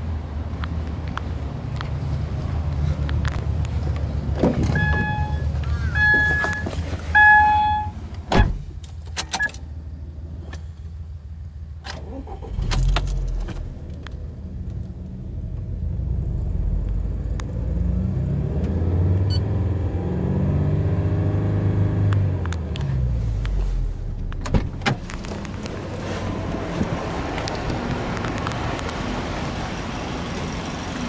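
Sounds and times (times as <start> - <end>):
car engine idling and revving: 0.0 - 31.0
car door shutting: 4.4 - 9.6, 24.2 - 25.5
car two-note warning chime: 4.7 - 8.0.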